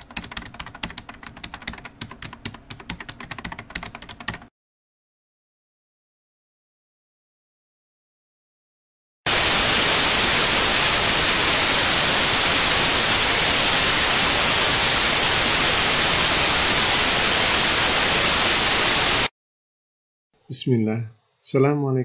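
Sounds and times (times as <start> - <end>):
static hiss: 9.3 - 19.3.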